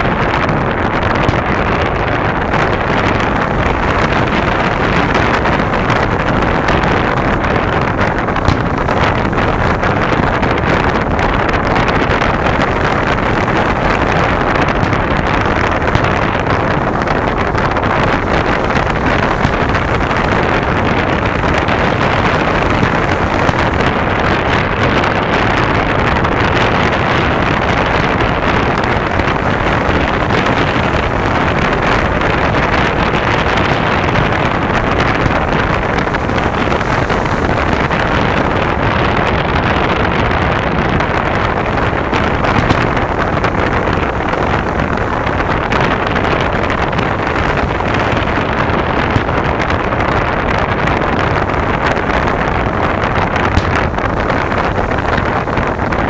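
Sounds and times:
wind on microphone: 0.0s - 56.0s.

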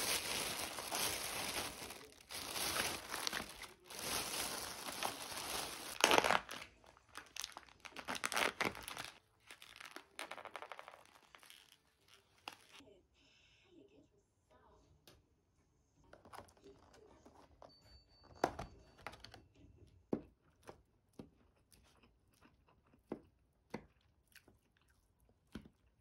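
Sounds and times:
plastic bag rustling: 0.0s - 12.8s.

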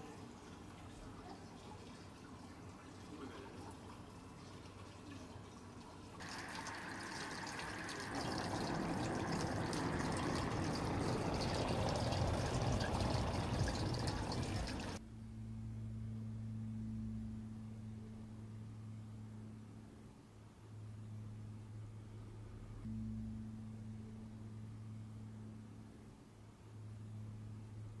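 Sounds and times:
fountain splashing into pond: 6.2s - 15.0s
steady low hum: 6.2s - 28.0s.

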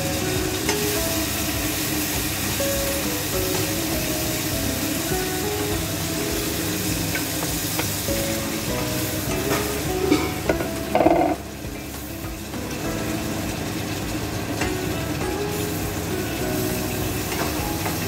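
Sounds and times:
chicken sizzling in a pot: 0.0s - 18.0s
wooden spoon stirring: 10.6s - 11.4s.

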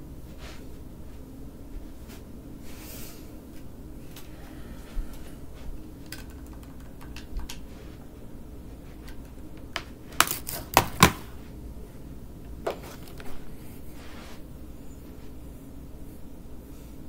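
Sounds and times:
hard objects clicking and knocking: 6.0s - 7.6s.

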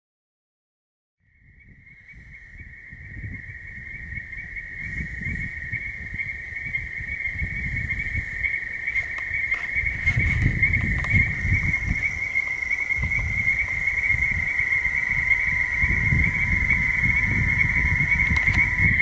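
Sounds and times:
frog trilling: 1.3s - 19.0s
low rumble: 7.5s - 19.0s.

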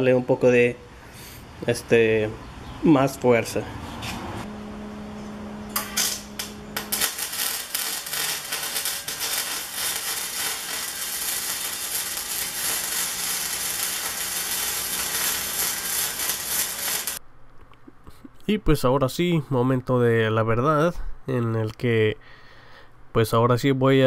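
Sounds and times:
arc welding crackle: 5.7s - 17.2s.

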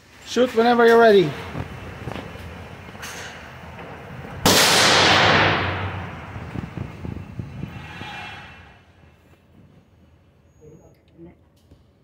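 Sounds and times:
pistol shot: 4.4s - 6.1s.

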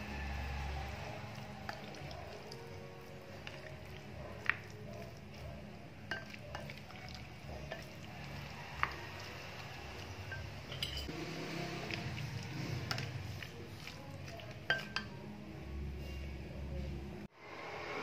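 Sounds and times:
spatula wet mixing in bowl: 0.5s - 15.2s
spatula clinking against bowl: 1.7s - 11.1s, 11.9s - 15.2s.

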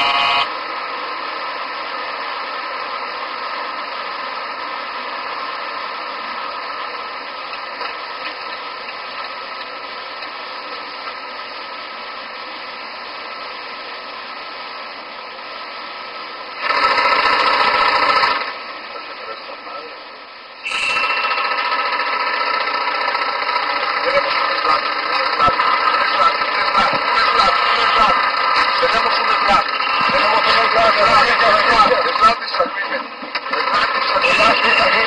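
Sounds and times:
pitched warning tone: 0.0s - 0.5s, 20.6s - 22.0s, 24.0s - 31.6s, 34.2s - 35.0s
cockpit hiss and hum: 0.0s - 35.0s.

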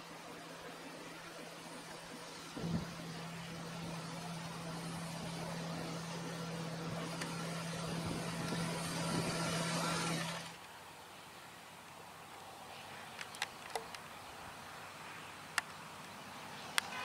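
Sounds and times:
farm machinery hum: 0.0s - 10.6s.

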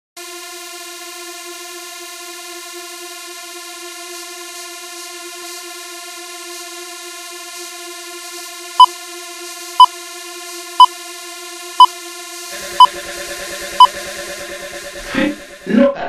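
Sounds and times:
synthesizer drone: 12.4s - 16.0s
high countdown beeps: 12.6s - 15.7s
electronic dance music: 12.6s - 16.0s.

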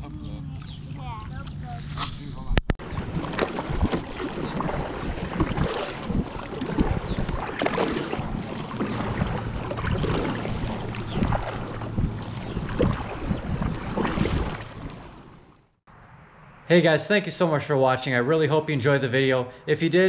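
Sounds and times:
wind on microphone: 0.6s - 15.2s
paddle splashing in water: 2.8s - 15.8s.

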